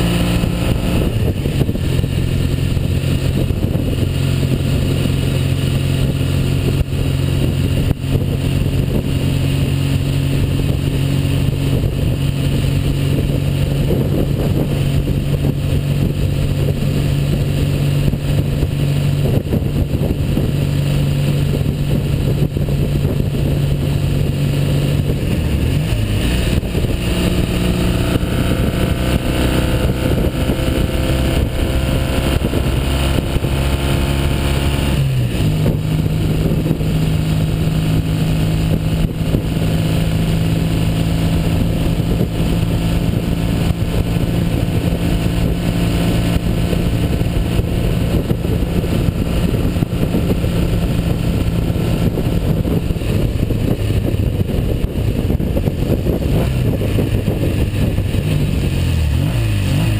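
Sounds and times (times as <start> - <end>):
motorcycle engine running: 0.0 - 59.9.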